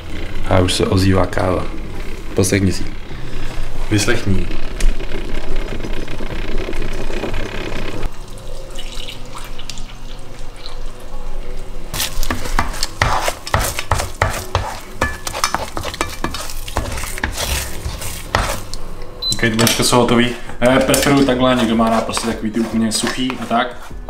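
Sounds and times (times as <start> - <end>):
coffee maker bubbling and hissing: 5.0 - 9.8
dishes and utensils clattering: 13.9 - 18.6.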